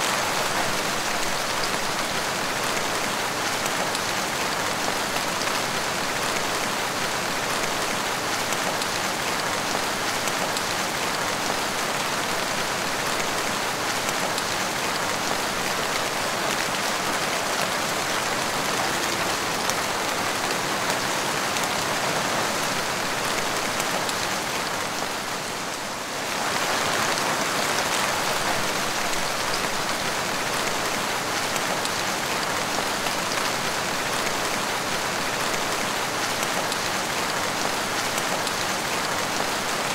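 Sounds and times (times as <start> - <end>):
rain splashing on tiled floor: 0.0 - 39.9.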